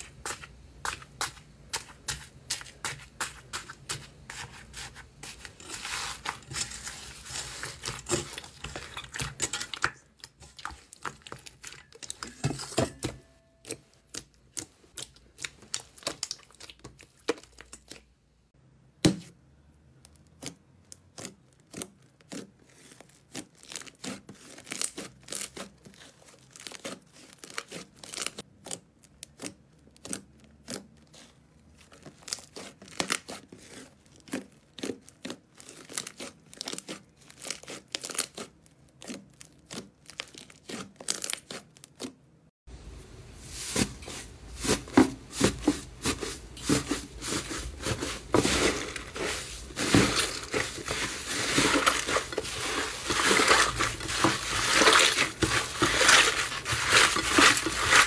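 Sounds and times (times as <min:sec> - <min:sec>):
slime crackling and popping: 0:14.0 - 0:18.1, 0:20.0 - 0:42.2.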